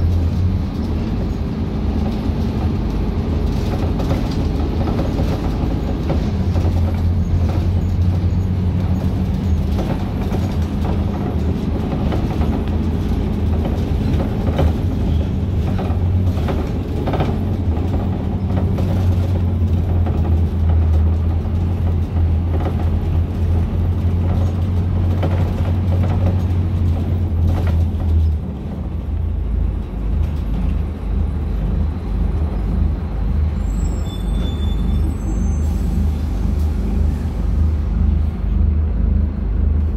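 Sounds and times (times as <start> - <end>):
bus diesel engine drone: 0.0 - 39.9
knocks and rattles: 8.8 - 28.4.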